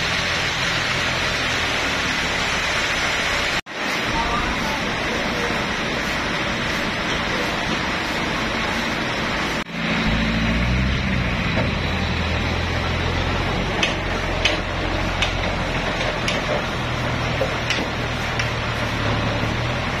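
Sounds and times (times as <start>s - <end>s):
forklift engine running: 0.0s - 20.0s
sharp clicks and clanks: 13.7s - 18.6s.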